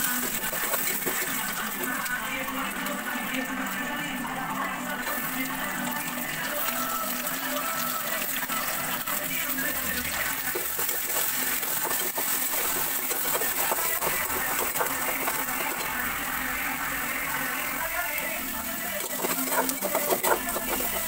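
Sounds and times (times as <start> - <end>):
food sizzling in hot oil: 0.0 - 21.0
metal spatula scraping a pan: 18.9 - 21.0.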